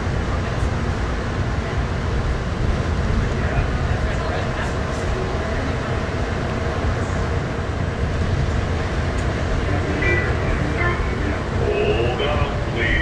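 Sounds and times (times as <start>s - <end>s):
faint passenger voices: 0.0s - 13.0s
train rumbling in tunnel: 0.0s - 13.0s.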